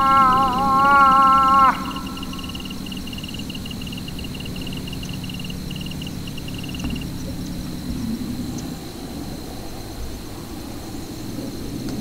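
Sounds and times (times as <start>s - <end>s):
high-pitched chirps: 0.0s - 6.8s.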